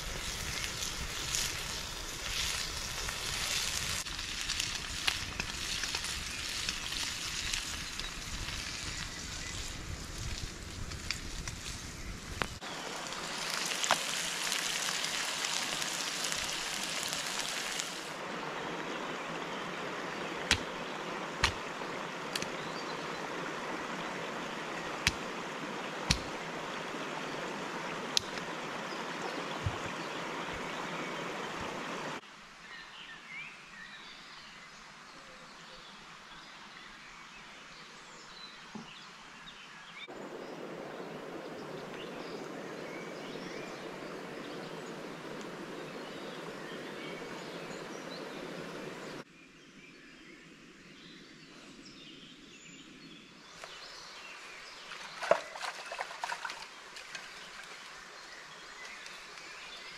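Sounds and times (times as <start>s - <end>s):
campfire wood snapping: 0.0s - 18.0s, 20.4s - 22.6s, 24.9s - 25.4s, 26.0s - 26.5s, 28.1s - 28.5s
mountain stream rushing: 12.6s - 32.2s, 40.0s - 49.2s, 53.6s - 59.9s.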